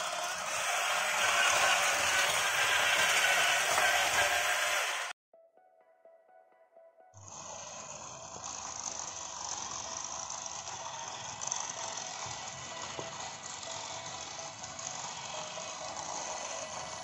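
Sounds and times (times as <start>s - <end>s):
wheels rattling over plastic track: 0.0s - 5.1s, 7.2s - 17.0s
toy car motor whir: 0.0s - 5.2s, 7.2s - 17.0s
faint jingle music: 5.3s - 7.2s.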